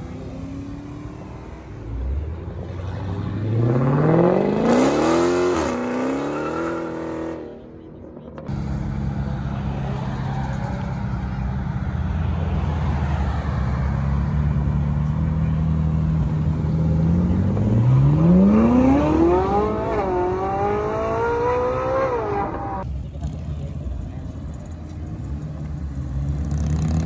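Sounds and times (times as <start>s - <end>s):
sports car engine accelerating: 15.0s - 22.8s.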